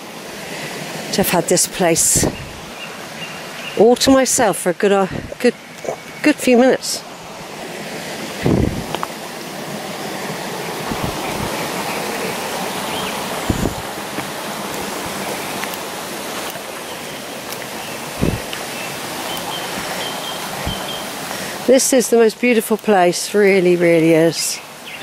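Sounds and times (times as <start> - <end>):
brook rushing: 10.0 - 21.8.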